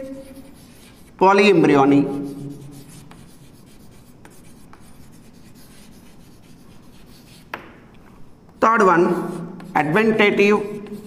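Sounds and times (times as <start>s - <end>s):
chalk scratching on chalkboard: 0.0s - 7.8s, 8.5s - 11.0s
chalk tapping: 0.0s - 11.0s.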